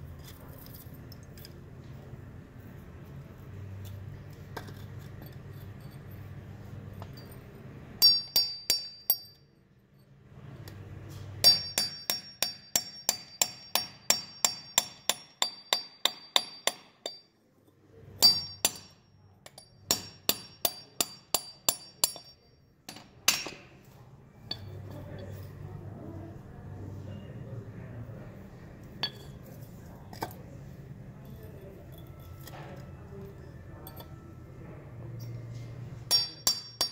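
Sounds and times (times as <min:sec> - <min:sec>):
hammer striking steel punch: 0:08.0 - 0:09.4, 0:11.4 - 0:17.2, 0:18.2 - 0:23.7, 0:36.1 - 0:36.9.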